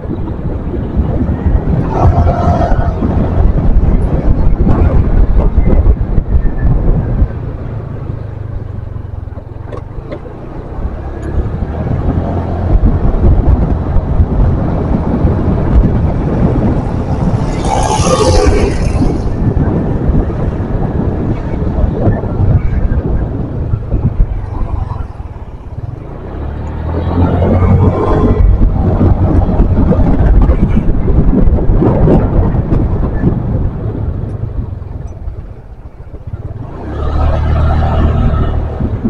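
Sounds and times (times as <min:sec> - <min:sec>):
road noise: 0:00.0 - 0:39.0
wind buffeting microphone: 0:00.0 - 0:39.0.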